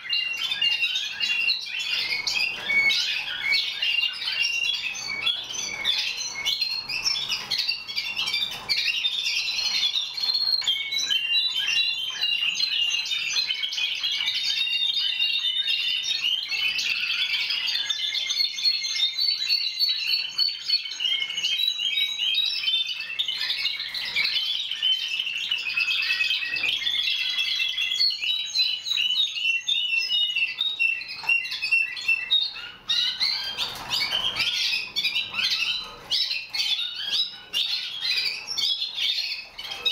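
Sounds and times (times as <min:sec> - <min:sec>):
canaries singing: 0:00.0 - 0:39.9.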